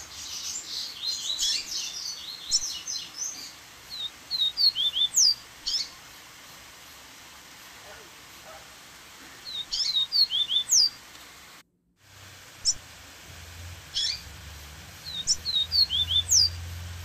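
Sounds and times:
bird chirping and whistling: 0.4 - 5.9, 9.4 - 11.0, 13.9 - 14.3, 15.0 - 16.7.

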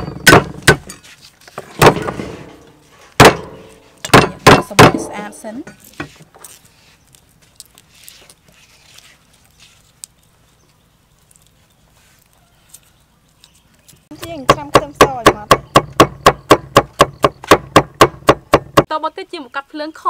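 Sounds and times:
cleaver chopping on wooden board: 0.1 - 0.9, 3.2 - 5.1, 14.2 - 18.9
garlic skins crinkling: 5.8 - 14.2.

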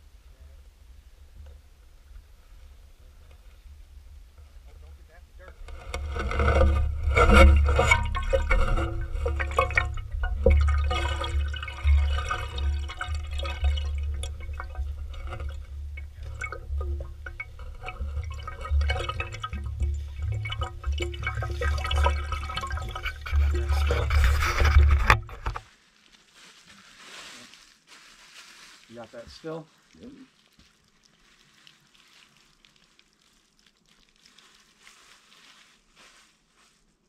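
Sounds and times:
fluctuating rumble: 0.0 - 25.6
water running and splashing: 6.0 - 26.1, 26.9 - 36.4.

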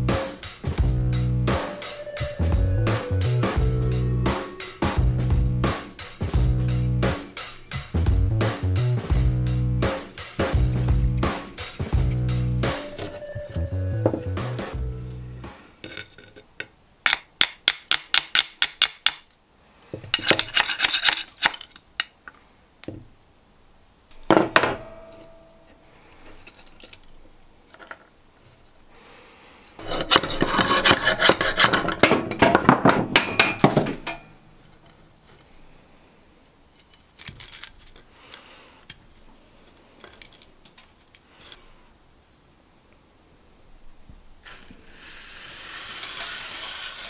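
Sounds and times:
metal blade scraping cardboard: 20.1 - 21.6, 29.8 - 32.4.

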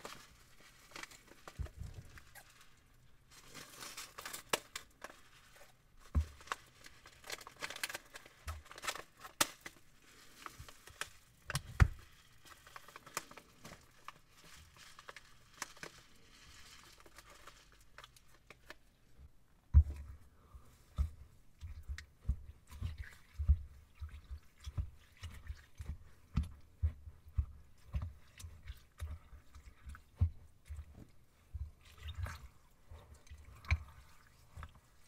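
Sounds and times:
plastic bag crinkling: 0.0 - 18.9.

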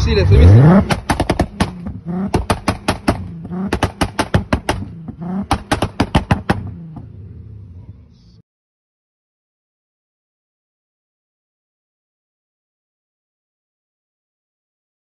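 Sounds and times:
car engine idling: 0.1 - 8.3
exhaust popping and crackling: 0.4 - 7.1.

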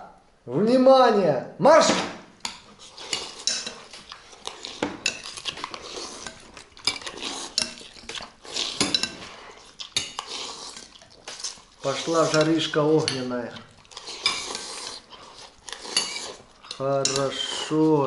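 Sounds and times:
forks scraping ceramic plates: 2.4 - 10.8, 11.8 - 13.3, 14.0 - 16.4, 17.0 - 17.8.

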